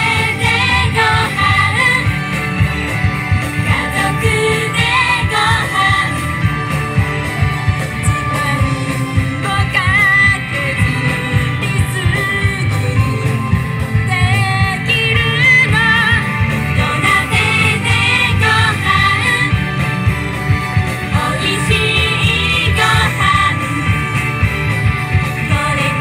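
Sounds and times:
women singing pop: 0.0s - 2.3s, 3.6s - 6.5s, 8.0s - 13.3s, 14.0s - 19.6s, 21.1s - 24.2s, 25.2s - 26.0s
upbeat backing music: 0.0s - 26.0s.

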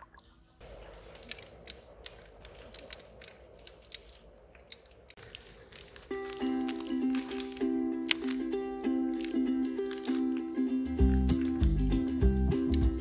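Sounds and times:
wood fire crackling and popping: 0.6s - 13.0s
ukulele background music: 6.0s - 13.0s.

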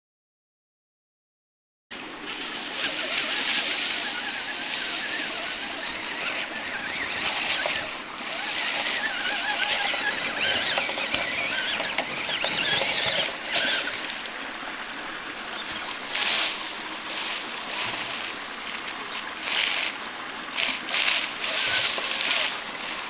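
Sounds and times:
steady hiss: 2.0s - 9.9s, 13.4s - 23.0s
electric motor whining: 2.0s - 23.0s.

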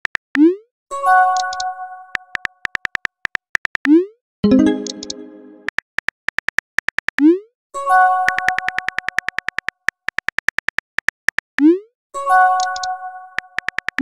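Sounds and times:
synthesizer chord: 4.4s - 5.7s
quick typing clicks: 8.3s - 11.5s, 12.6s - 14.0s.

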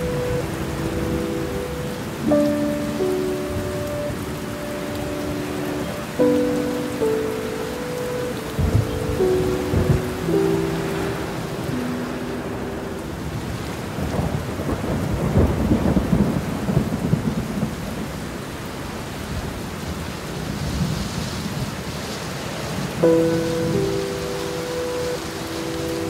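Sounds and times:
thunder rumbling: 0.0s - 18.3s
heavy rain: 0.0s - 26.0s.

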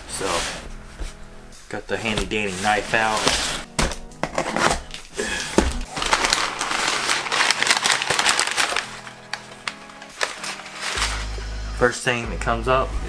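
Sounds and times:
background music: 0.0s - 13.0s
packing paper crinkling: 4.2s - 11.4s.

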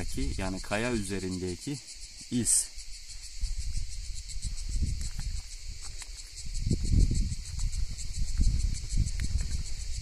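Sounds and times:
insects chirring: 0.0s - 10.0s
wind on microphone: 2.2s - 10.0s.

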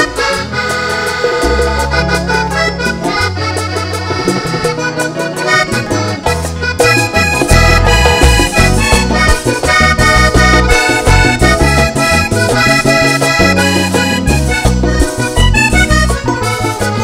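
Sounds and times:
button accordion: 0.0s - 17.0s
drums: 0.0s - 17.0s
electric bass: 0.0s - 17.0s.

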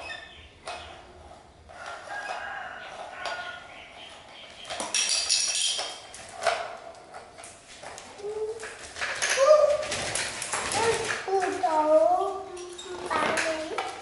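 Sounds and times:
rooster crowing: 1.8s - 3.6s.

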